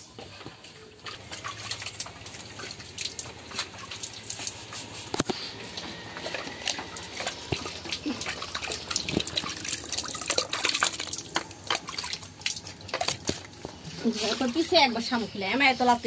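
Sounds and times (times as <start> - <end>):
milk squirting into plastic bucket: 1.1 - 14.4.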